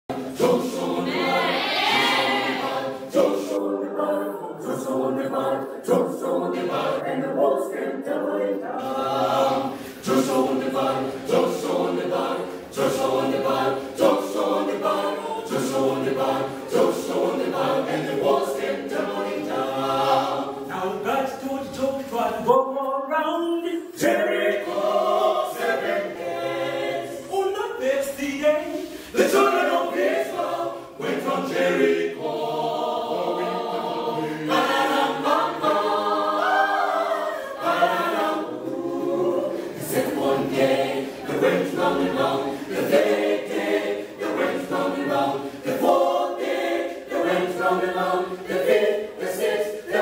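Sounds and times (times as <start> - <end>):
a cappella group singing: 0.0 - 50.0.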